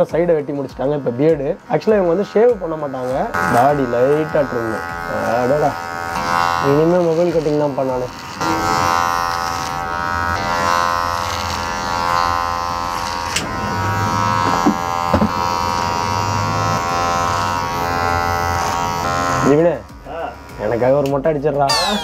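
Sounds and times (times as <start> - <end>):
electric hair clipper buzzing: 0.0 - 20.6, 21.7 - 22.0.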